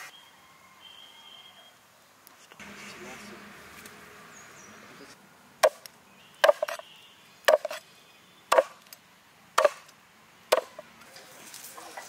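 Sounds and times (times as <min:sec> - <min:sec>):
blade chopping on wooden board: 0:06.4 - 0:06.8, 0:07.5 - 0:07.8, 0:08.5 - 0:08.8, 0:09.6 - 0:09.9.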